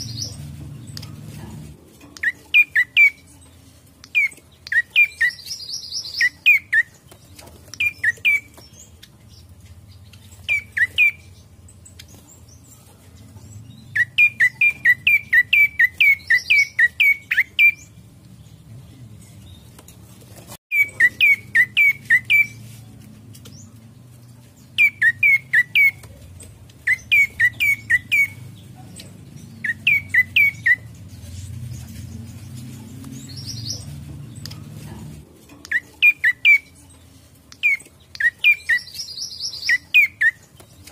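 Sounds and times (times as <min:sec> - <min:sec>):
high bird twitter: 0:20.7 - 0:22.6, 0:26.8 - 0:28.5, 0:29.4 - 0:31.5, 0:35.6 - 0:36.8.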